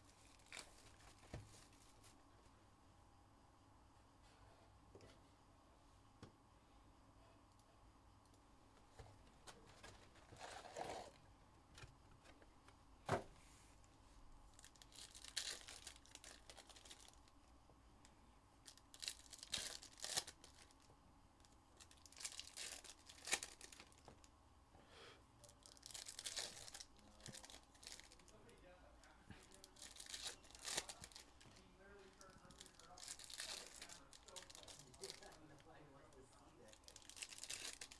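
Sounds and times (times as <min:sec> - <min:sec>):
wrappers tearing and crinkling: 0:10.3 - 0:11.2, 0:14.6 - 0:17.2, 0:18.7 - 0:20.8, 0:21.8 - 0:24.1, 0:25.5 - 0:28.4, 0:29.4 - 0:35.4, 0:36.7 - 0:37.9.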